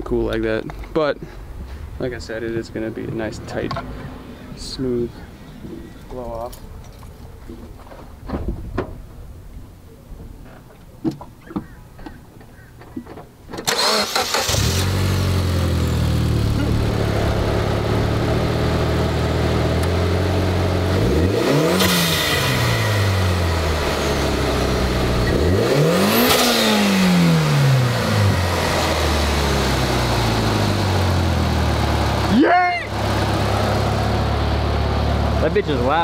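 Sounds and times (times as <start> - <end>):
car engine starting and revving: 13.6 - 36.0.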